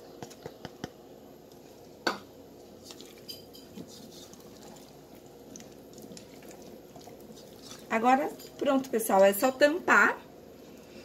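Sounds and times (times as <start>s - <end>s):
spatula stirring in pot: 2.5s - 9.4s.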